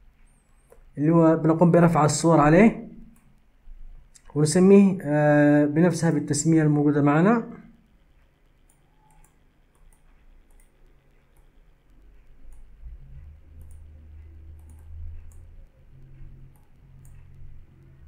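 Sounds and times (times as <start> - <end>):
low hum: 0.0 - 18.0
keyboard and mouse clicks: 0.2 - 1.0, 2.8 - 3.5, 7.8 - 18.0.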